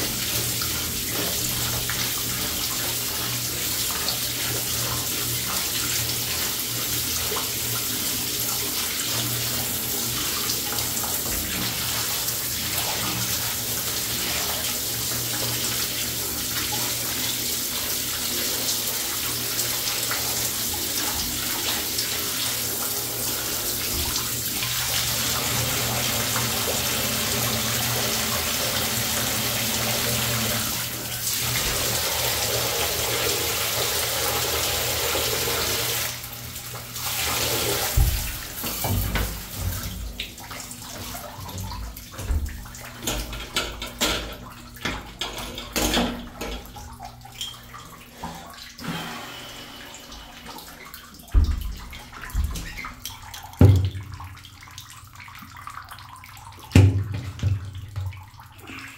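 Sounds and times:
shower sprayer running into bathtub: 0:19.8 - 0:36.2, 0:48.8 - 0:50.6.

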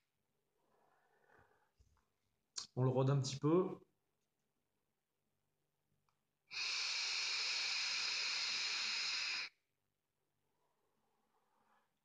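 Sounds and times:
vape atomizer hiss: 0:06.5 - 0:09.6.

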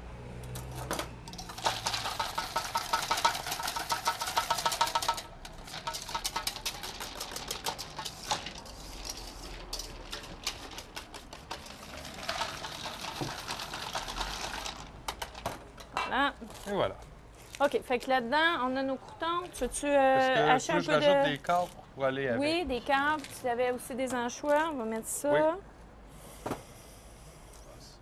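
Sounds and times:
whisk beating in steel bowl: 0:01.3 - 0:14.7.

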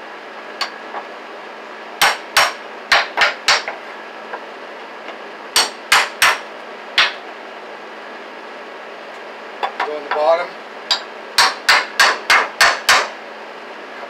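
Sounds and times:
hammer striking wooden bed frame: 0:02.0 - 0:03.8, 0:05.6 - 0:06.4, 0:07.0 - 0:07.2, 0:10.9 - 0:13.2.

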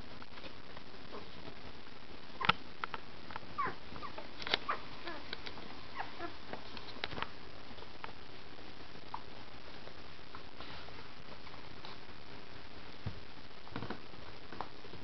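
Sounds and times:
puppy squeaks and grunts: 0:03.6 - 0:05.2.

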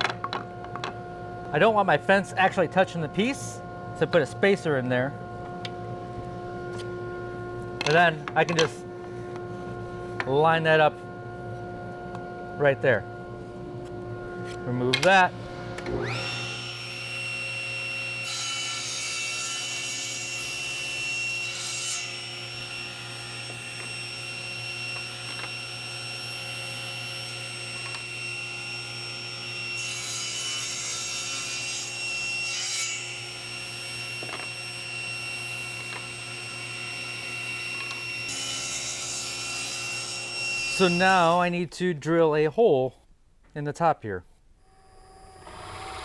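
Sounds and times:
table saw motor running: 0:15.5 - 0:41.3, 0:44.6 - 0:46.0
saw cutting wood: 0:15.9 - 0:41.4, 0:44.9 - 0:46.0.

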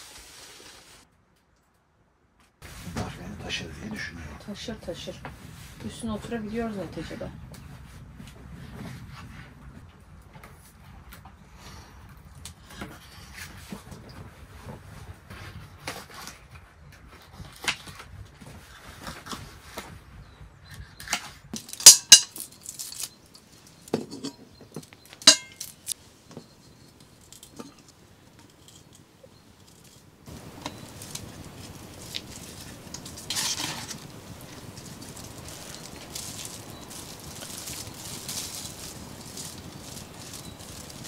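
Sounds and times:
utensils clicking and knocking: 0:21.6 - 0:41.0
metal pot and lid clanking: 0:25.2 - 0:25.6
meat rustling into pot: 0:29.6 - 0:41.0.

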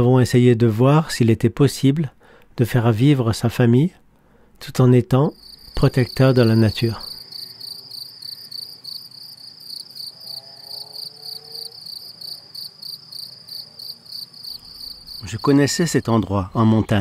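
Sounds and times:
cricket chirping: 0:05.3 - 0:17.0.

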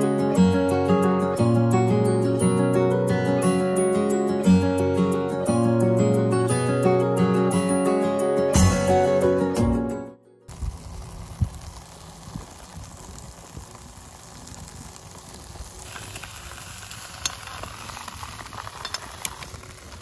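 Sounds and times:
steady hiss: 0:10.5 - 0:20.0
wind rumble on microphone: 0:10.5 - 0:20.0.

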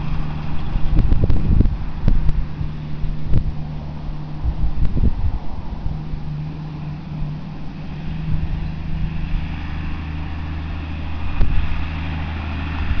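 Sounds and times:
distant tractor engine hum: 0:00.0 - 0:13.0.

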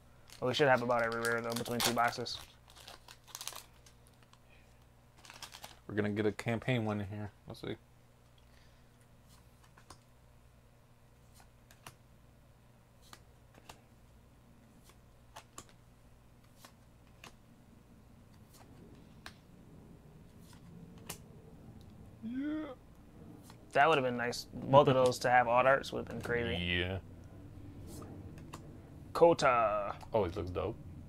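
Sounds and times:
trading cards clicking: 0:14.8 - 0:15.8, 0:20.4 - 0:21.2.

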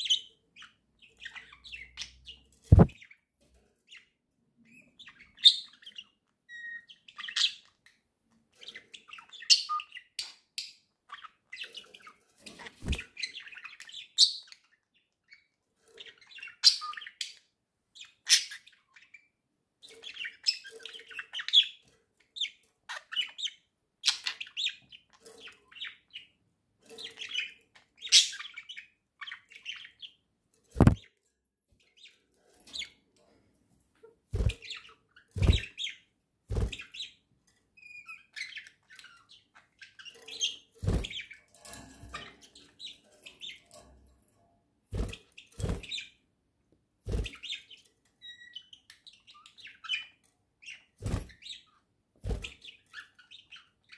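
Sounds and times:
budgerigars chirping: 0:00.0 - 0:03.2, 0:04.7 - 0:07.8, 0:27.0 - 0:30.2, 0:30.8 - 0:31.0, 0:34.4 - 0:37.2.

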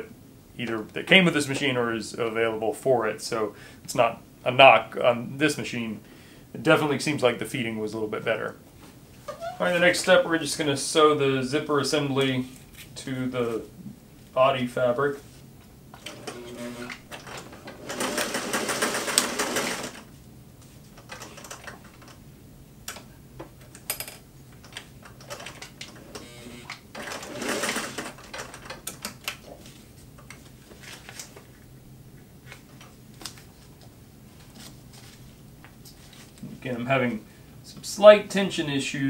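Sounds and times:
sewing machine stitching: 0:16.0 - 0:20.0, 0:25.2 - 0:28.8.

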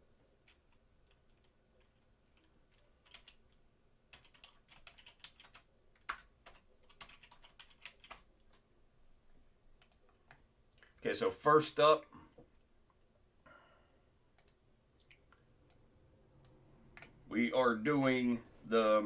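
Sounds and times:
typing on computer keyboard: 0:00.4 - 0:08.6, 0:09.8 - 0:10.4.

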